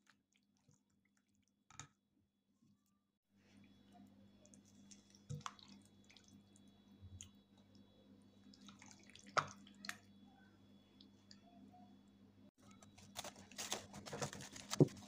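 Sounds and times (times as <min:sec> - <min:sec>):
wet squelching of stirring: 0:03.4 - 0:10.1.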